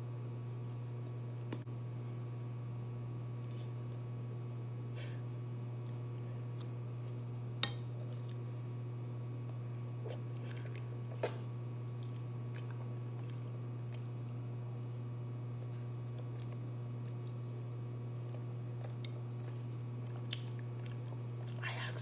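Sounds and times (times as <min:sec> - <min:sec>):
steady low hum: 0:00.0 - 0:22.0
chewing and mouth sounds: 0:03.4 - 0:04.2, 0:08.0 - 0:08.5, 0:09.4 - 0:14.7, 0:15.6 - 0:22.0.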